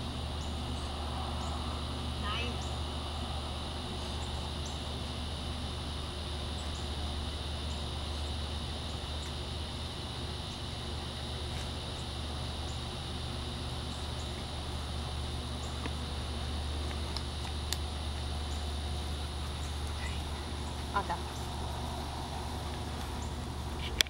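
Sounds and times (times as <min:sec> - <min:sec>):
even hiss: 0:00.0 - 0:24.0
steady high hum: 0:00.0 - 0:24.0.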